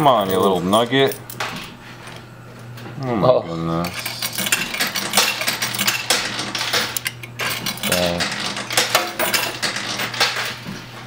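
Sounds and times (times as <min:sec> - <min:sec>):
coins clinking and clattering: 0:00.0 - 0:01.5, 0:03.9 - 0:10.6.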